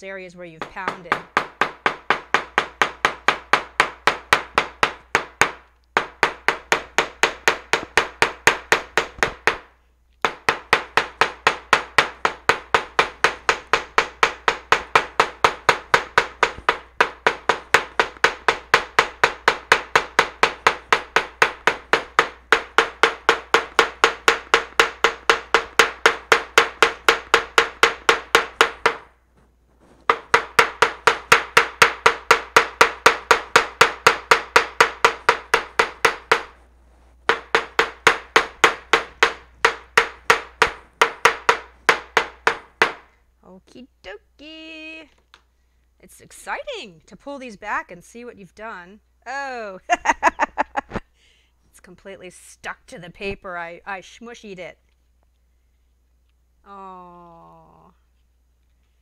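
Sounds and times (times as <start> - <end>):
small hammer tapping on paper: 0.6 - 29.1, 29.8 - 43.2.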